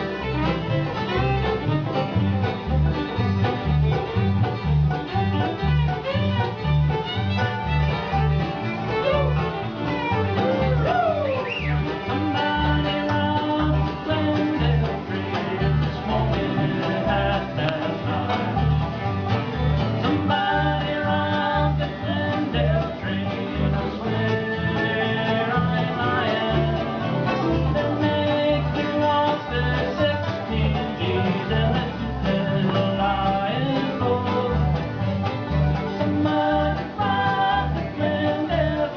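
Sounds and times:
acoustic guitar: 0.0s - 38.9s
banjo: 0.0s - 38.9s
fiddle sliding between notes: 0.0s - 38.9s
upright bass steady beat: 0.0s - 38.9s.

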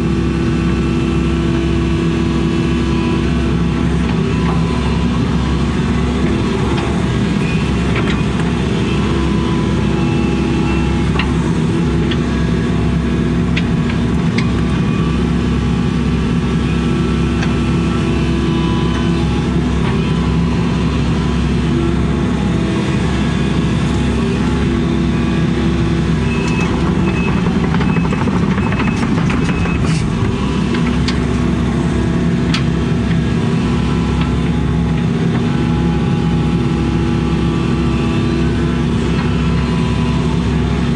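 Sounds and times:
diesel engine running: 0.0s - 40.9s
sharp clicks and knocks: 26.4s - 31.2s.

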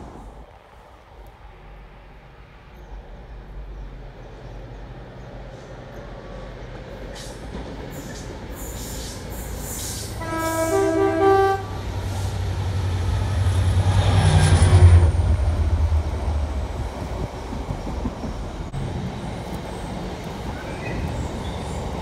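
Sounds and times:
locomotive engine rumble: 0.0s - 22.0s
two-tone train horn: 10.1s - 12.2s.

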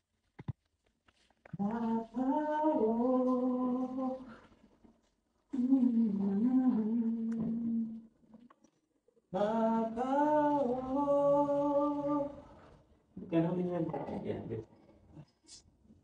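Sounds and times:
woman humming a slow tune: 5.5s - 8.1s.

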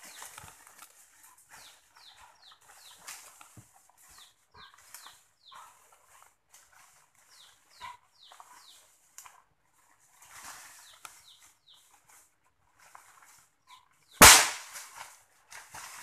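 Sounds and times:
rifle shot with echo: 14.2s - 14.8s.

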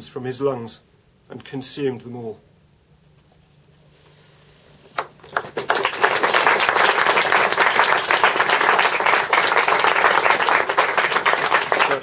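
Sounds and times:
audience applause: 5.2s - 12.0s.

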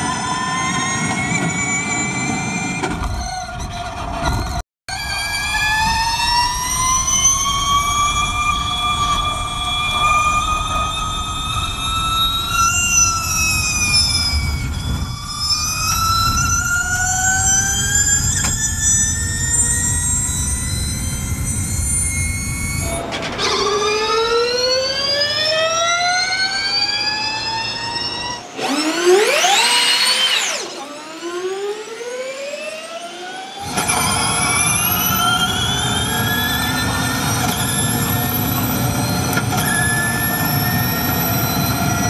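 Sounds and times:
electric race car whine: 4.2s - 42.0s.

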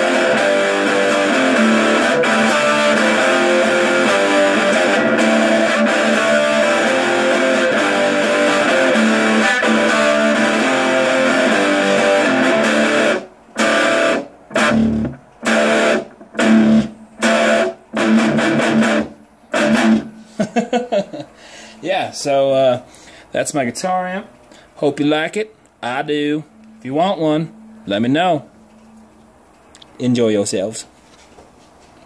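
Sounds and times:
electric guitar chords: 0.0s - 21.7s, 25.8s - 29.7s.

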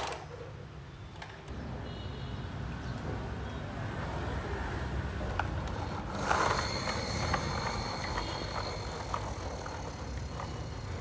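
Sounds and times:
plastic toy clicks: 0.0s - 0.3s, 5.3s - 11.0s.

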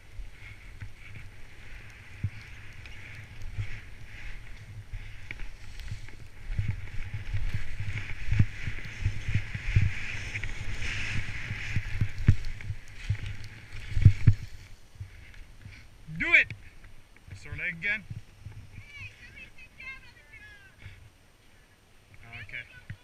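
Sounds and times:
skis hissing through powder snow: 0.0s - 15.9s.

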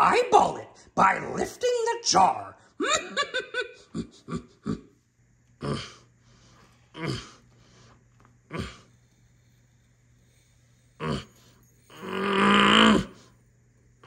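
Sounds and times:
man's gravelly puppet voice: 0.0s - 2.6s
man grunting with effort: 5.6s - 6.0s, 6.9s - 7.4s, 12.0s - 13.2s.

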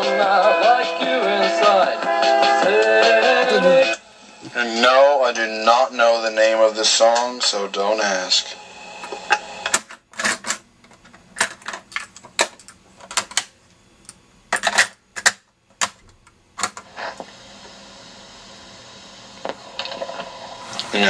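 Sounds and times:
faint tape hiss: 0.0s - 14.6s, 15.2s - 21.0s.

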